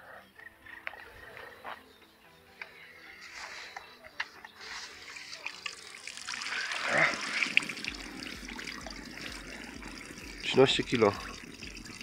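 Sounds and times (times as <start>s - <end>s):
water trickling and dripping: 5.0s - 12.0s.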